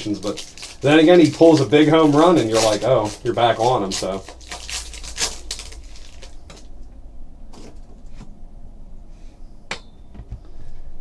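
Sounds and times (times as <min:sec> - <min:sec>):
foil wrapper crinkle: 0:00.0 - 0:06.8.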